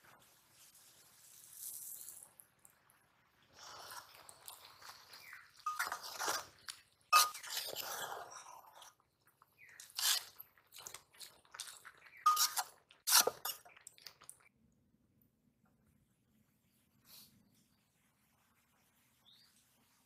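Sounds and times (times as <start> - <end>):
cabbage crunching and rustling: 3.6 - 8.9, 9.6 - 14.2
spoon clinking on metal bowl: 12.3 - 12.6.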